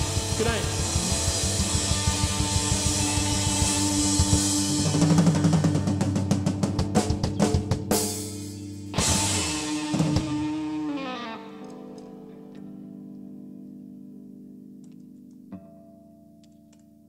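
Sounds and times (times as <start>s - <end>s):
live rock band playing: 0.0s - 13.6s.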